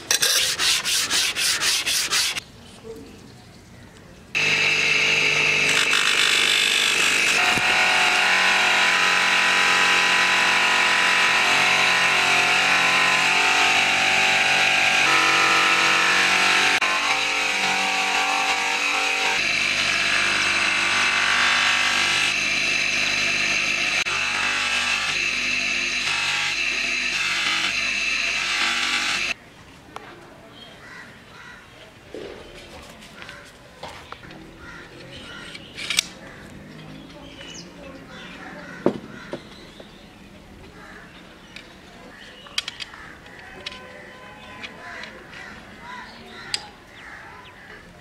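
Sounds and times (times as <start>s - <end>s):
electric buffing wheel spinning: 4.4s - 29.4s.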